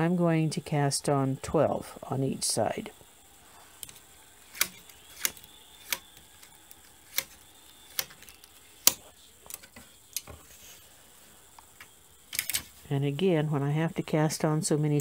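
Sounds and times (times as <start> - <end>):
knitting machine needles clicking: 3.8 - 10.3, 11.8 - 12.8.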